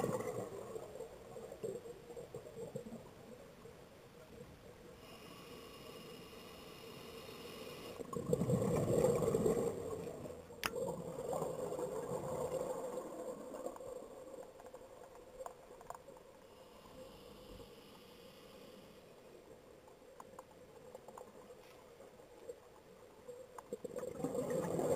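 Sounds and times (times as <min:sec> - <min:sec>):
regulator bubbles gurgling: 0:00.0 - 0:01.7, 0:08.1 - 0:14.2, 0:23.7 - 0:24.9
hissing inhale through regulator: 0:05.0 - 0:08.2, 0:16.4 - 0:19.2.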